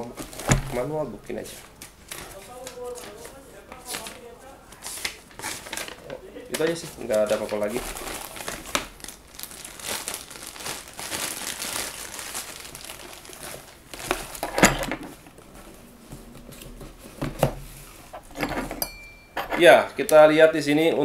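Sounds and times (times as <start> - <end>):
plastic bag crinkling: 5.0 - 15.7.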